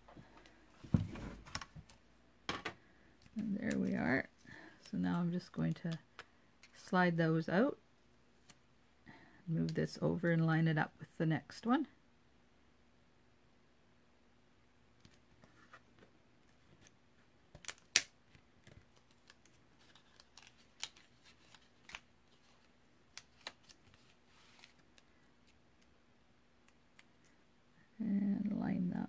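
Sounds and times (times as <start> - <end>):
paper rustling: 18.6 - 25.6.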